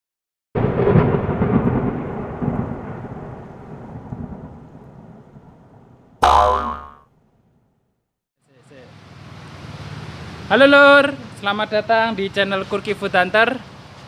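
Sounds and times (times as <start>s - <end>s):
thunderclap and rumble: 0.6s - 6.2s.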